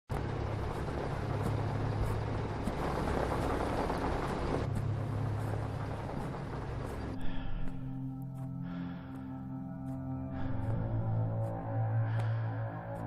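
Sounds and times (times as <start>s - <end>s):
vehicle engine idling: 0.1s - 7.9s.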